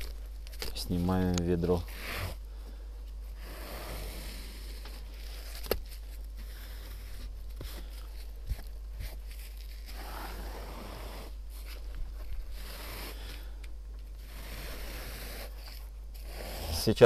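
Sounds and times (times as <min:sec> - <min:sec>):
low steady hum: 0:00.0 - 0:17.0
trowel scraping adhesive: 0:14.2 - 0:17.0.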